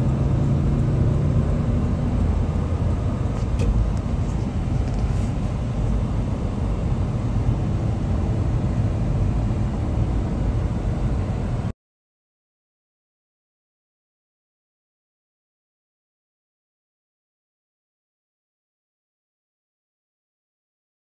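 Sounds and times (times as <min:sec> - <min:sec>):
road rumble inside car: 0:00.0 - 0:11.7.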